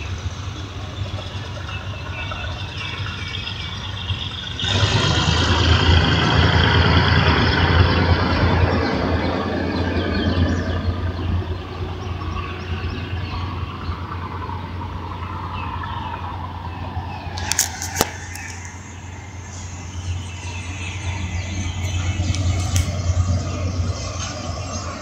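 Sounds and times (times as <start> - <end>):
freight train rumbling: 0.0 - 25.0
sharp clicks: 17.4 - 18.8.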